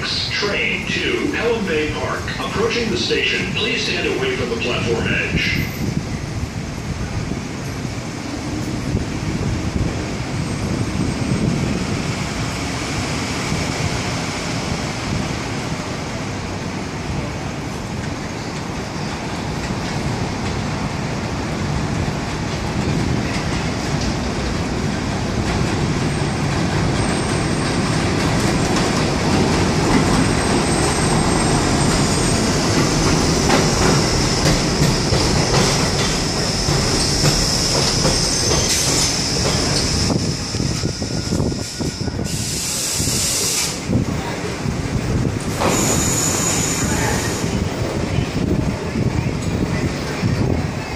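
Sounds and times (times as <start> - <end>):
train wheels rumbling on rails: 0.0 - 50.9
high wheel squeals: 36.0 - 43.5, 45.6 - 47.6.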